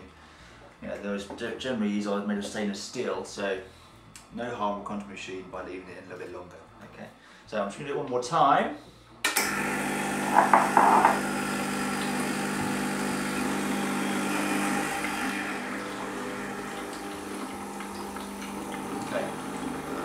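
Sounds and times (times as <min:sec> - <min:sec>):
espresso machine pump buzzing: 0:09.3 - 0:20.0.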